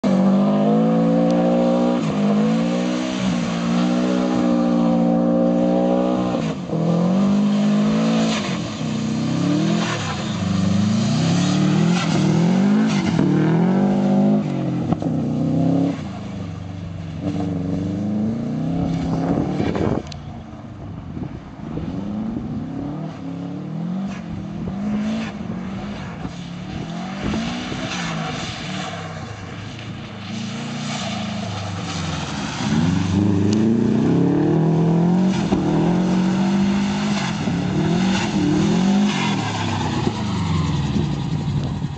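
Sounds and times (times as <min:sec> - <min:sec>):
car engine revving hard: 0:00.0 - 0:16.0, 0:31.3 - 0:41.0
tyres sliding on gravel: 0:27.0 - 0:34.4.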